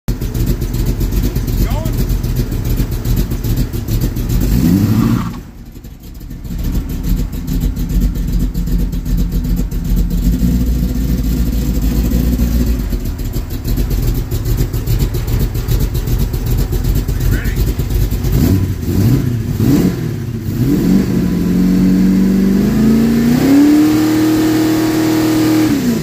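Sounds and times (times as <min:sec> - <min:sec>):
v eight engine rumbling: 0:00.1 - 0:26.0.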